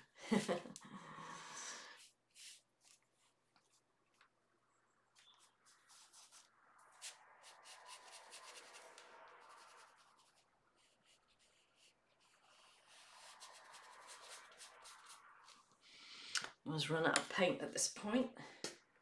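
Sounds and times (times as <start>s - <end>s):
paintbrush rubbing on canvas paper: 2.0s - 3.3s, 5.2s - 15.6s.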